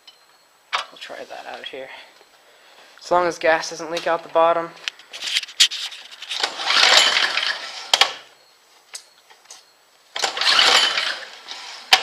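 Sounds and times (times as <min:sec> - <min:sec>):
small engine turning over: 0:06.2 - 0:08.2, 0:10.2 - 0:12.0
recoil starter cord pulls: 0:06.3 - 0:08.2, 0:10.2 - 0:12.0.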